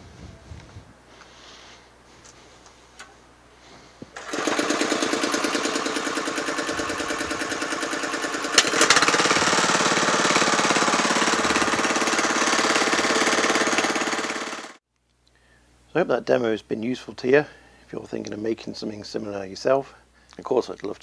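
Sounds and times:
petrol engine pulsing: 4.2s - 14.8s.

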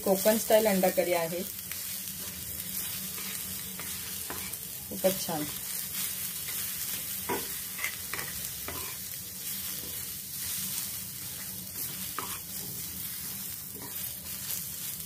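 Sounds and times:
onions sizzling: 0.0s - 15.0s
wooden spatula scraping iron pan: 11.8s - 12.8s.

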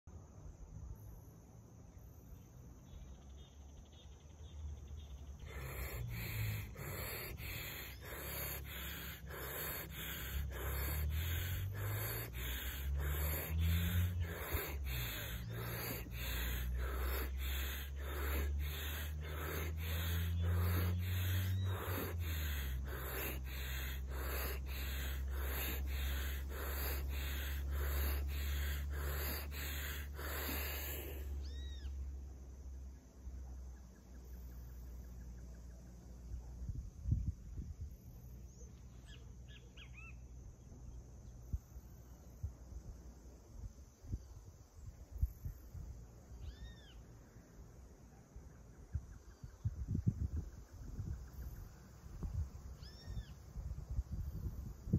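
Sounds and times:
man breathing rapidly: 5.4s - 31.4s.

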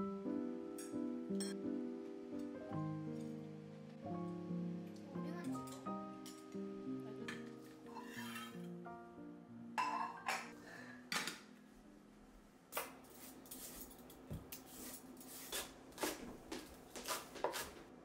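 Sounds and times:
dishes clinking on stone counter: 9.8s - 10.6s
knife chopping on wooden board: 15.5s - 17.8s.

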